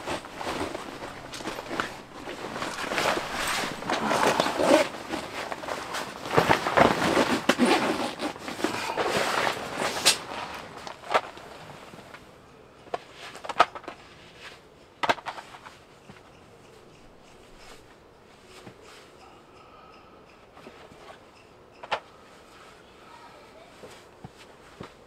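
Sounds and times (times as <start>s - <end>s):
rustling and clattering: 0.0s - 19.2s.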